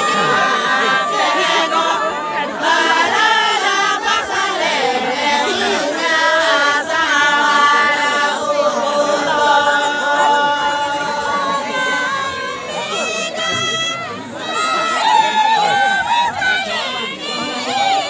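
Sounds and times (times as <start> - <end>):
men singing together: 0.0 - 13.7.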